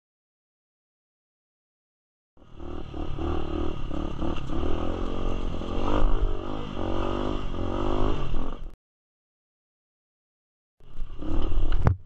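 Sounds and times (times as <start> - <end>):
motorcycle engine revving: 2.4 - 8.8, 10.8 - 12.0.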